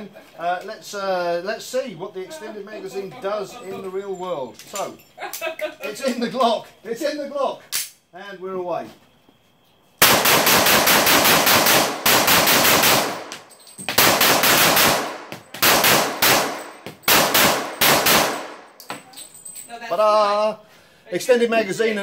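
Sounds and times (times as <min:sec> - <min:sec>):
rapid pistol shots: 0:10.0 - 0:18.7.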